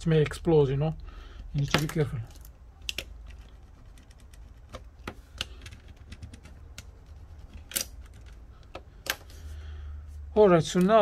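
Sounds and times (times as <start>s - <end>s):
low steady hum: 0.0s - 11.0s
small tool clicking and scratching: 2.3s - 9.2s.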